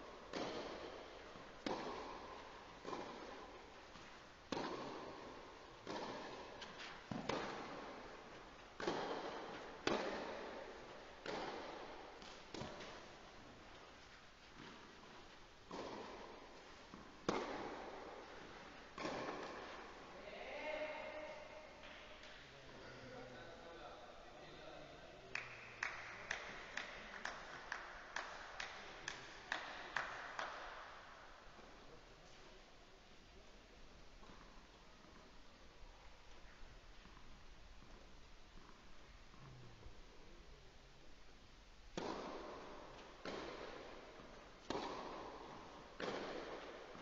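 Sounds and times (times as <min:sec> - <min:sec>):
tennis racket striking ball: 0:00.0 - 0:20.2, 0:25.8 - 0:31.7, 0:41.9 - 0:47.0.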